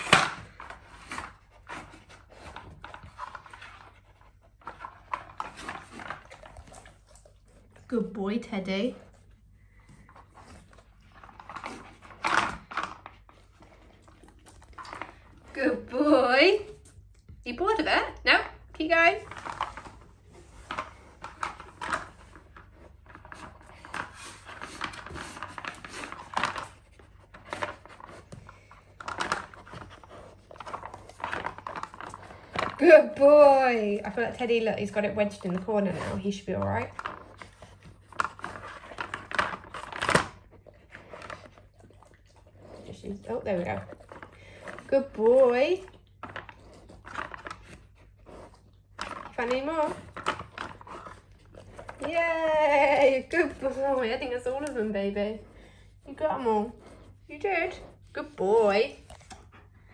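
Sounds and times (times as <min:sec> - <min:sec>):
dog sniffing: 0:19.5 - 0:32.8, 0:33.8 - 0:52.2, 0:53.3 - 0:59.9
dog panting: 0:40.5 - 0:52.3, 0:53.1 - 0:59.9.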